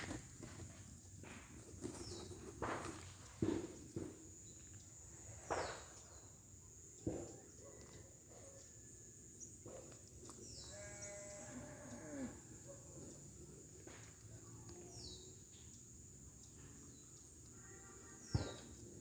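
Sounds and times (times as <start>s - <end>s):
knocks and rustles: 0.0s - 4.8s.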